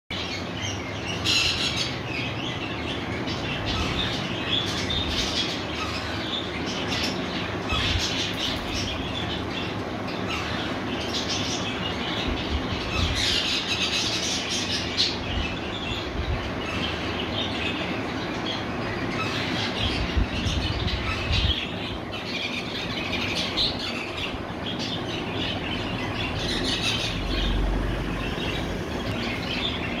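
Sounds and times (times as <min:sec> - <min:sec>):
parakeets squawking and chattering: 0:00.1 - 0:30.0
steady background noise: 0:00.1 - 0:30.0.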